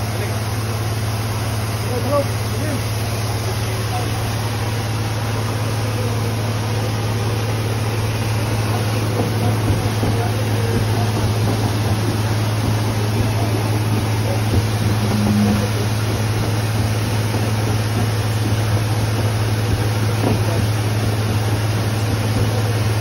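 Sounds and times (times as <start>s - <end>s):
engine droning: 0.0s - 23.0s
water splashing against metal: 6.5s - 23.0s.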